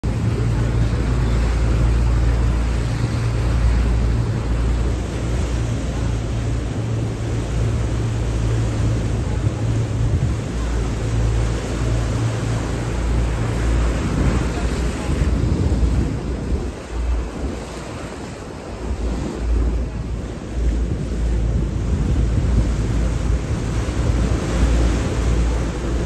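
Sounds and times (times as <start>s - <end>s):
boat engine humming: 0.0s - 26.0s
sea water washing: 0.0s - 26.0s.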